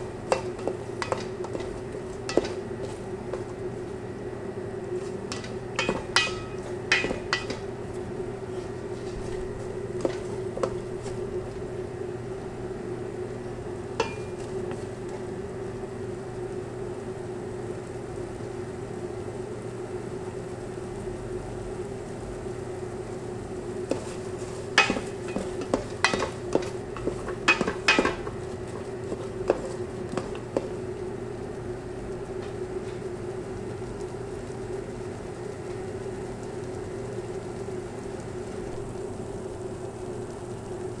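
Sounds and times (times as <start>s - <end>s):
steady low hum: 0.0s - 41.0s
spoon knocking a metal pot: 0.3s - 2.6s, 5.3s - 7.7s, 14.0s - 14.4s, 24.8s - 28.4s.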